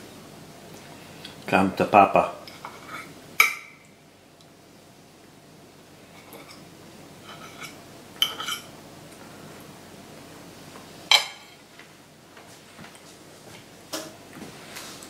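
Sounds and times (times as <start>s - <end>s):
fork clinking on ceramic plate: 7.3s - 8.7s.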